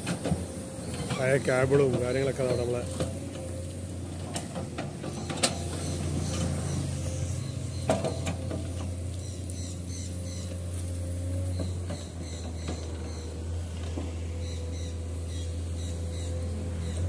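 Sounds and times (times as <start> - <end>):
excavator diesel engine running: 0.0 - 17.0
excavator bucket clanks: 4.2 - 6.6, 7.7 - 9.1.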